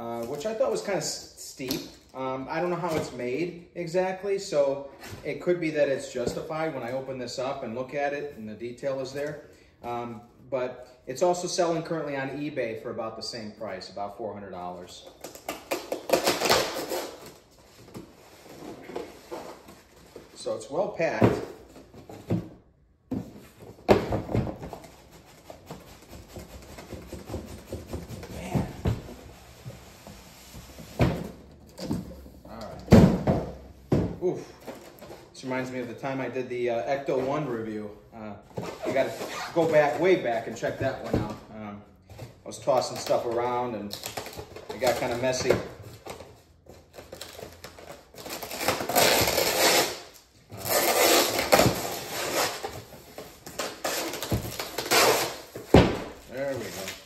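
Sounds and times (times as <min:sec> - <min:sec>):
packing tape tearing off: 0:15.2 - 0:17.5, 0:47.0 - 0:55.7
cardboard scraping and rustling: 0:50.6 - 0:57.0.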